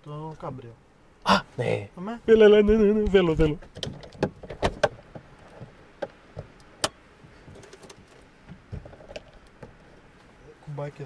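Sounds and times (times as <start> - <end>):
sharp clicks and knocks: 3.4 - 9.8.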